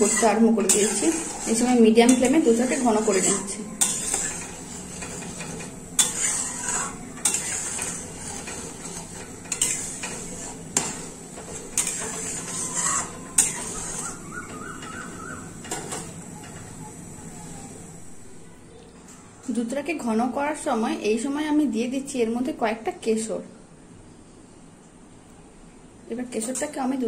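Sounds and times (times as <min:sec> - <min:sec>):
metal spatula scraping pan: 0:00.0 - 0:18.3.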